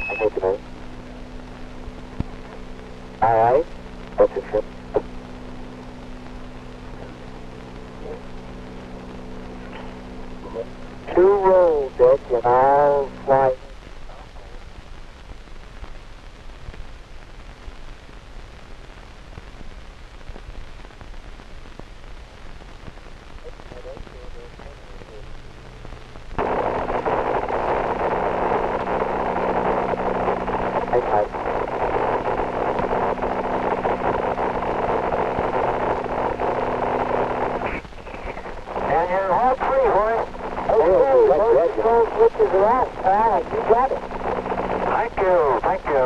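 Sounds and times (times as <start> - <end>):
faint crackles: 0.0 - 46.0
low hum: 0.0 - 46.0
radio channel hiss: 0.0 - 46.0.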